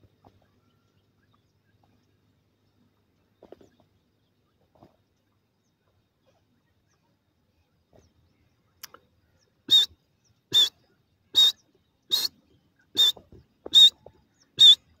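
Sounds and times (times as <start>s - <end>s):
bird giving sharp high calls: 9.7s - 14.0s, 14.6s - 14.9s.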